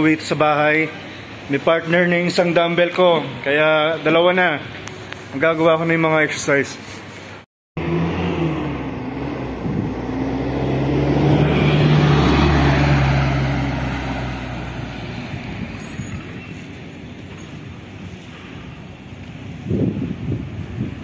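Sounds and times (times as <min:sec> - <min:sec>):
minibus engine driving past: 0:07.8 - 0:17.3.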